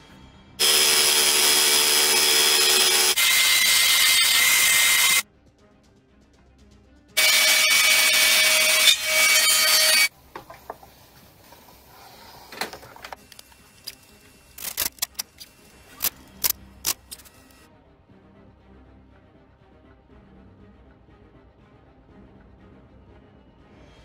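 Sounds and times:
electric router whining: 0.6s - 5.2s, 7.2s - 10.1s.

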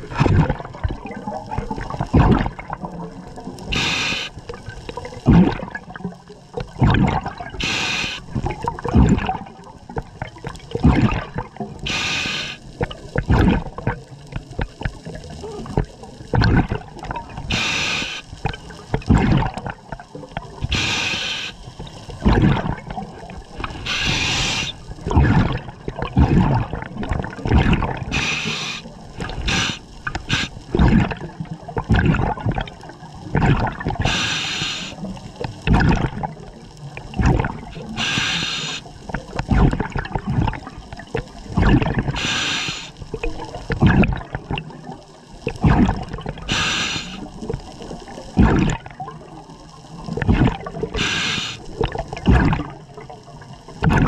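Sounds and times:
exhaled bubbles burbling: 0.0s - 54.0s
regulator air hiss: 3.7s - 4.4s, 7.6s - 8.3s, 11.8s - 12.7s, 17.5s - 18.4s, 20.6s - 21.7s, 23.6s - 24.9s, 28.1s - 30.7s, 34.0s - 35.1s, 37.8s - 38.9s, 42.2s - 43.0s, 46.5s - 47.3s, 51.0s - 51.7s.

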